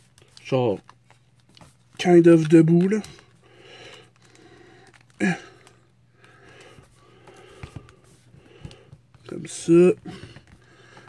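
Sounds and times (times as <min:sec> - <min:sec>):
soft breathing: 0:03.0 - 0:09.3, 0:10.0 - 0:11.0.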